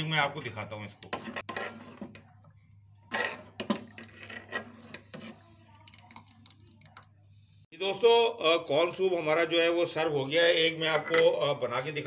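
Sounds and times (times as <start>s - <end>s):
metal ladle scraping a pot: 1.0s - 5.9s.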